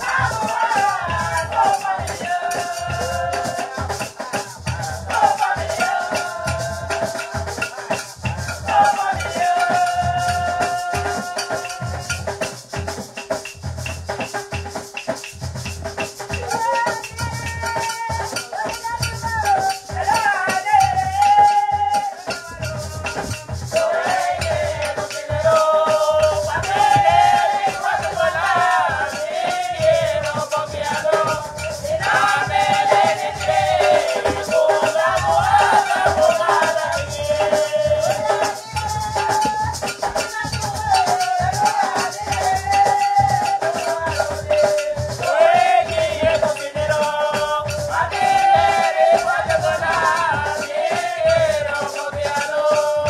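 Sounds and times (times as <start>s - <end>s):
women singing: 0.0s - 12.2s, 19.5s - 53.0s
hand drum beating: 0.0s - 53.0s
rattle keeping time: 22.0s - 48.5s.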